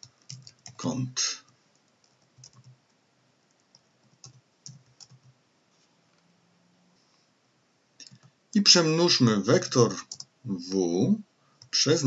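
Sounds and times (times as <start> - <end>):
computer keyboard keystrokes: 0.0 - 0.8, 1.8 - 2.9, 3.5 - 5.4, 10.0 - 10.3.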